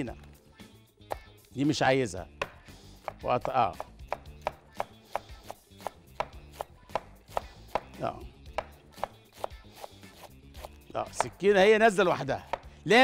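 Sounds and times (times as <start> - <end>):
knife shredding cabbage on board: 3.0 - 7.9, 8.9 - 11.4.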